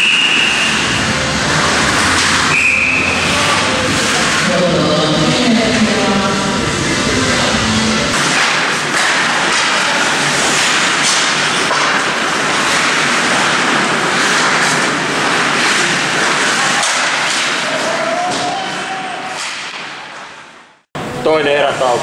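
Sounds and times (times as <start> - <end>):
crowd din: 0.6 - 11.6
hockey sticks and puck clicking: 8.2 - 13.1, 14.2 - 18.6.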